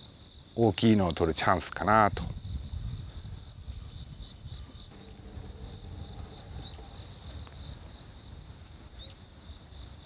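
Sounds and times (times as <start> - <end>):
insects trilling: 0.0 - 10.0
faint chirps: 3.8 - 10.0
low uneven rumble: 4.8 - 9.0.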